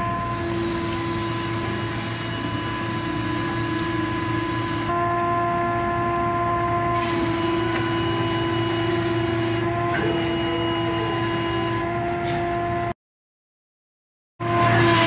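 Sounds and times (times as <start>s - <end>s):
machinery drone with whine: 0.0s - 12.9s, 14.4s - 15.0s.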